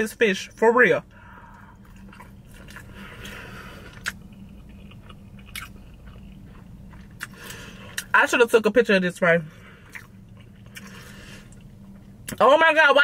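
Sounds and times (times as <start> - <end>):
person chewing: 1.3 - 8.2, 9.6 - 12.4.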